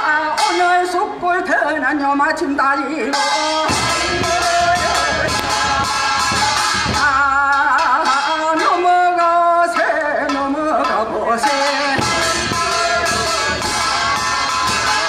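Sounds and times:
drum beats: 0:03.4 - 0:08.4, 0:10.8 - 0:15.0.

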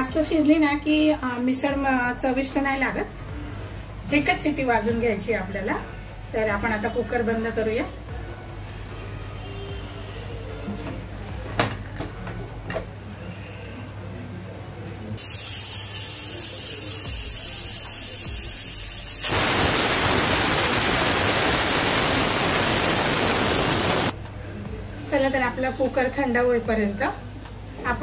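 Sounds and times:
pressure cooker whistle: 0:15.2 - 0:24.1
pressure cooker steam hissing: 0:15.2 - 0:24.2.

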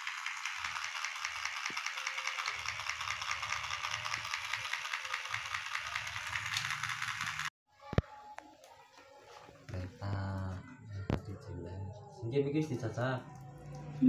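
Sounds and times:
toy train motor whirring: 0:00.0 - 0:07.5.

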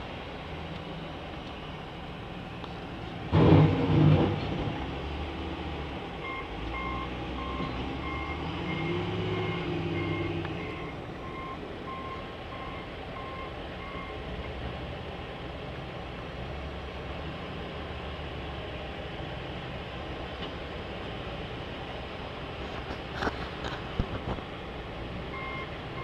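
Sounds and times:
diesel truck engine running: 0:00.0 - 0:26.0
reversing alarm beeping: 0:06.2 - 0:14.2, 0:25.3 - 0:26.0.

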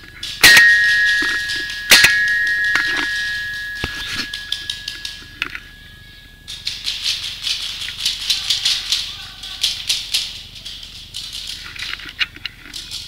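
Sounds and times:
high ringing: 0:00.2 - 0:07.0.

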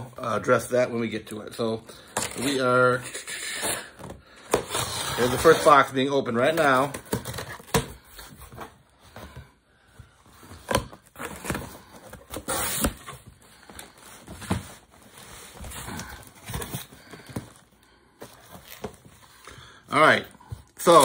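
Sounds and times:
knife cutting cardboard box: 0:03.5 - 0:05.8, 0:10.6 - 0:13.2.

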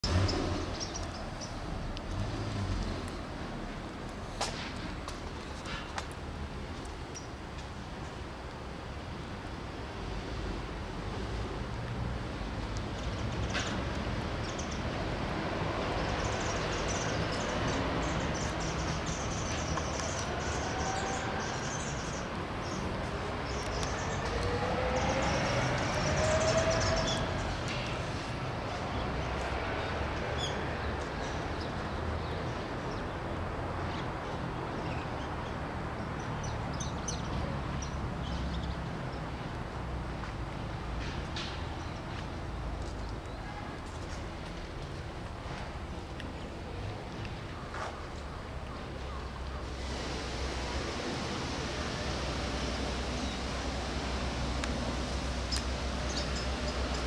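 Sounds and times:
small birds chirping: 0:00.0 - 0:01.7, 0:16.0 - 0:33.3, 0:55.4 - 0:57.0
passing vehicle engine: 0:00.0 - 0:05.1, 0:10.0 - 0:34.6, 0:49.6 - 0:57.0.

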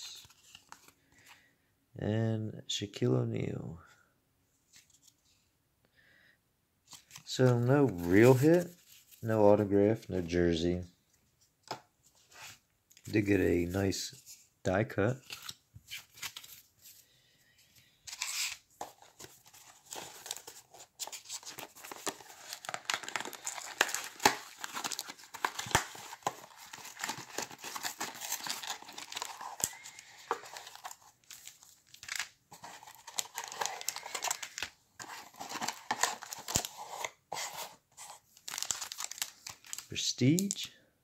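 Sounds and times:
plastic wrappers crinkling: 0:18.1 - 0:40.7
cardboard box tearing: 0:21.3 - 0:29.7.

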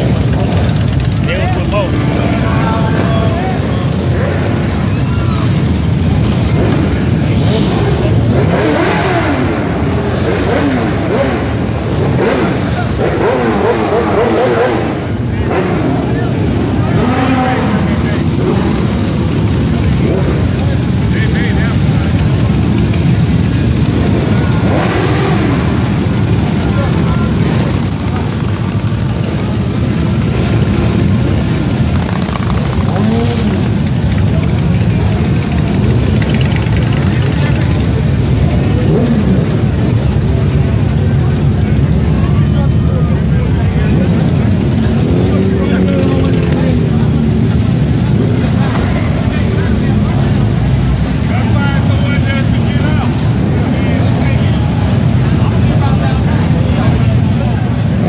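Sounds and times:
motorcycle engines rumbling: 0:00.0 - 0:58.0.

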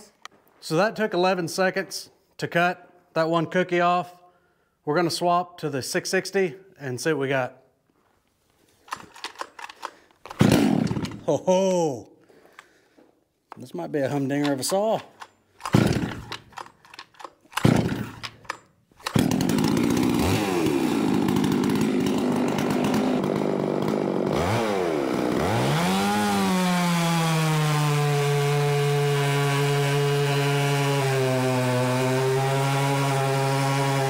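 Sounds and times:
chainsaw cutting a log: 0:10.3 - 0:11.3, 0:14.4 - 0:16.8, 0:17.4 - 0:34.0.

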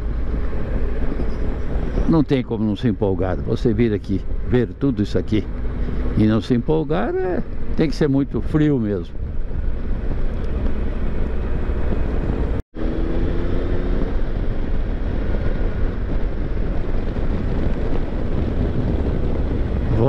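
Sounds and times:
motorcycle engine rumble: 0:00.0 - 0:20.0
wind rushing over microphone: 0:00.0 - 0:20.0.

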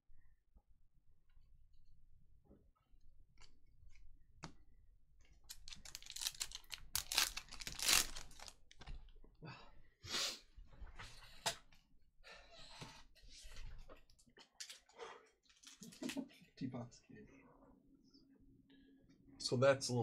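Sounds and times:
plastic wrapper tearing and crinkling: 0:05.5 - 0:08.8.

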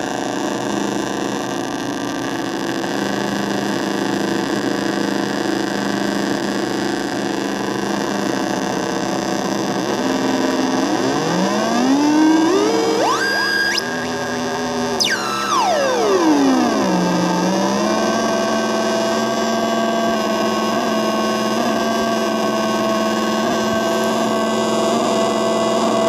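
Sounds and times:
buzzing electronic drone: 0:09.6 - 0:21.2.

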